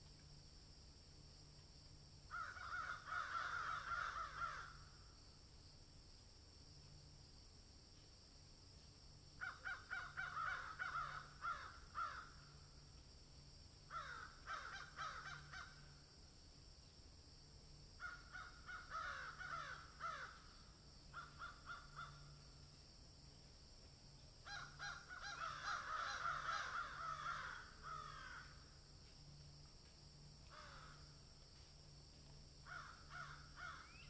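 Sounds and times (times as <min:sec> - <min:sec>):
crows cawing: 0:02.3 - 0:05.0, 0:09.4 - 0:12.7, 0:13.9 - 0:16.0, 0:18.0 - 0:22.5, 0:24.4 - 0:28.8, 0:30.5 - 0:31.2, 0:32.6 - 0:34.0.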